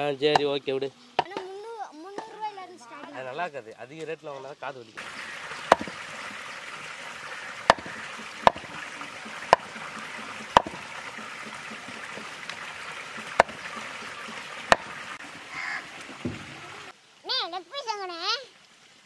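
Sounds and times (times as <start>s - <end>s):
steady background hiss: 0.0s - 7.9s
knife chopping meat: 5.7s - 6.0s, 7.7s - 12.3s, 13.2s - 14.1s, 14.7s - 14.9s.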